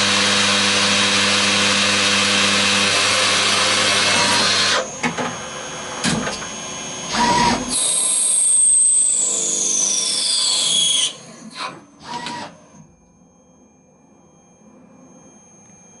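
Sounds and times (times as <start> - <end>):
high whine of turning cut: 0.0 - 16.0
faint machine hum: 10.7 - 16.0.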